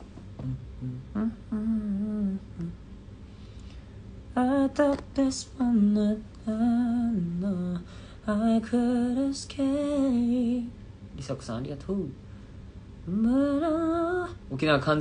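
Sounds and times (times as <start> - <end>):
man singing wordless melody: 13.1 - 14.8.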